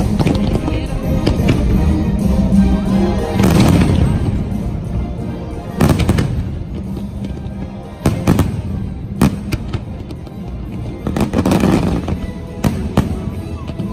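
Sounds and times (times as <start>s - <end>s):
soundtrack music: 0.0s - 13.9s
fireworks bursting bangs: 3.3s - 13.9s.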